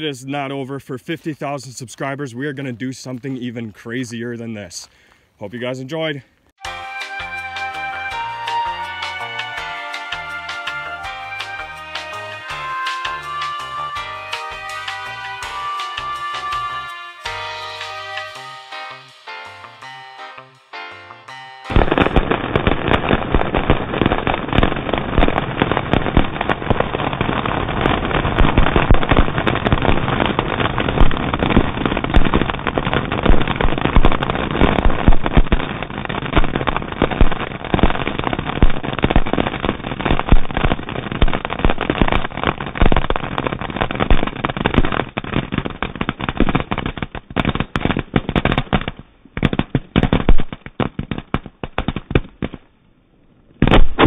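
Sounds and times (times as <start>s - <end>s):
firecrackers crackling: 21.3s - 52.8s, 53.5s - 54.0s.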